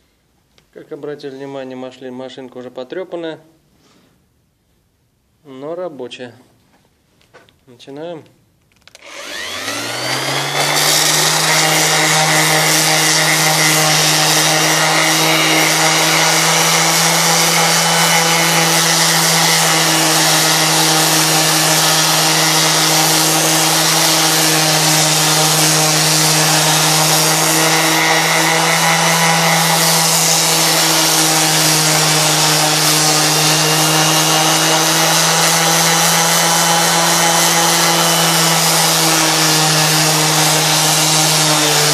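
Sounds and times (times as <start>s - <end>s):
orbital sander grinding wood: 8.9s - 41.9s.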